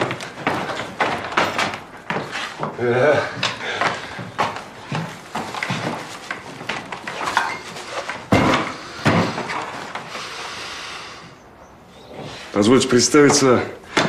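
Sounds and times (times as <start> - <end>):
objects clattering and knocking: 0.0 - 10.2.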